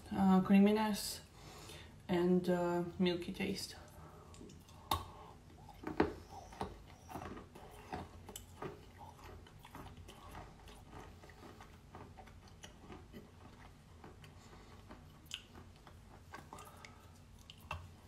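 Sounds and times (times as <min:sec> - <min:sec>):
person chewing wet clay chalk: 0:04.2 - 0:18.0.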